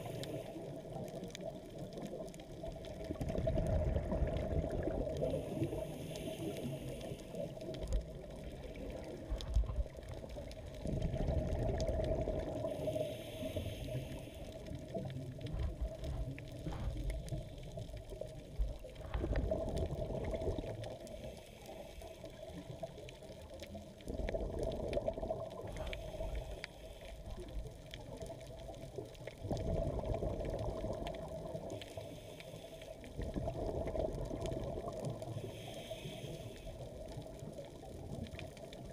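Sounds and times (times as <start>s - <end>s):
low underwater rumble: 0.0s - 38.9s
diver exhaling bubbles: 19.0s - 21.0s.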